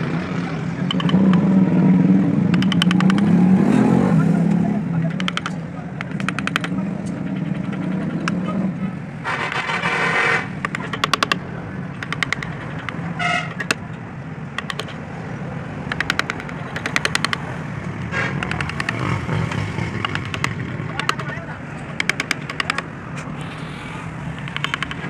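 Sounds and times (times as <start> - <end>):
low traffic hum: 0.0 - 25.0
chisel ticks on wood: 0.9 - 1.5, 2.5 - 3.4, 4.5 - 8.5, 10.6 - 14.0, 14.6 - 15.0, 15.9 - 17.6, 18.4 - 22.9, 24.3 - 25.0.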